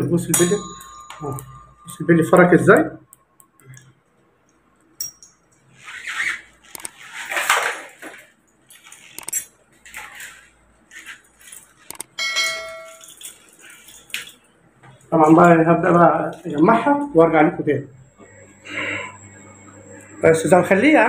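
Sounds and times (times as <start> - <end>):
bell-like ding: 0.3 - 2.7, 12.2 - 13.0
metal parts rustling and clinking: 6.8 - 14.6.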